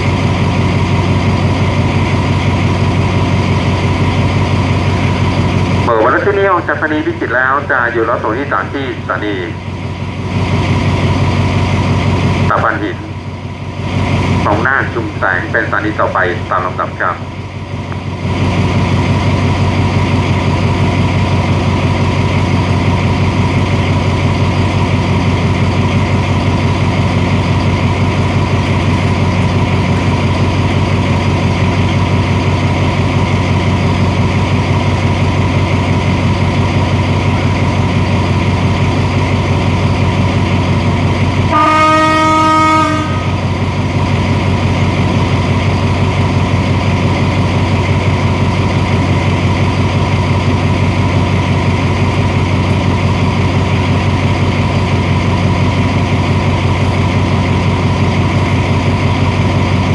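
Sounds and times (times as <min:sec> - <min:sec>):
locomotive engine idling: 0:00.0 - 0:59.9
locomotive horn: 0:41.5 - 0:43.5.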